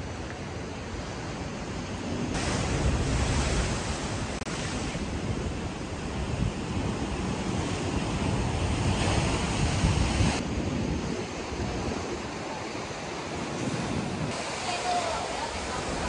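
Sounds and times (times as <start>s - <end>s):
wind buffeting microphone: 0.0s - 16.0s
surf breaking on rocks: 2.2s - 10.4s, 13.4s - 16.0s.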